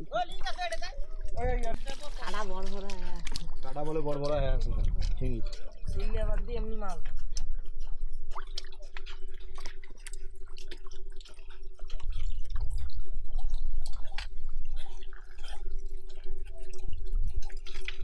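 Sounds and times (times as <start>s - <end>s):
muddy water sloshing and dripping: 0.0s - 18.0s
hands squelching in mud: 1.3s - 5.8s.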